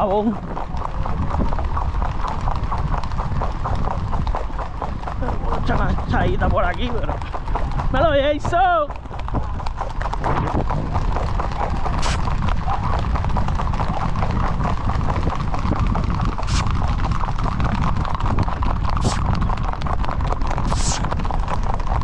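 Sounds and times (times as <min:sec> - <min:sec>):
hooves clip-clopping on pavement: 0:00.0 - 0:22.0
low rumble: 0:00.0 - 0:22.0.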